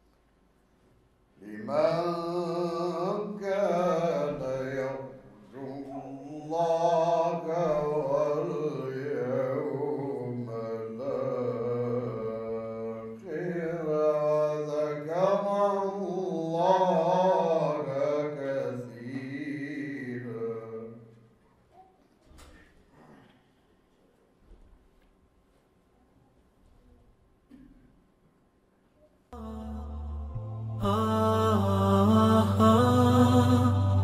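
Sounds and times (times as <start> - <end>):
man chanting unaccompanied: 1.4 - 21.1, 29.4 - 34.0
steady low hum: 29.4 - 34.0.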